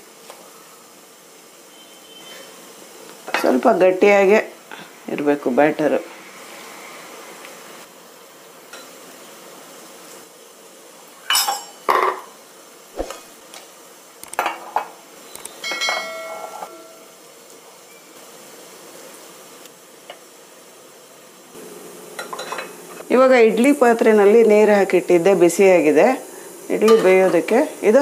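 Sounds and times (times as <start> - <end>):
metal plates and spoon clinking: 11.3 - 12.2, 15.6 - 17.1, 22.2 - 22.8.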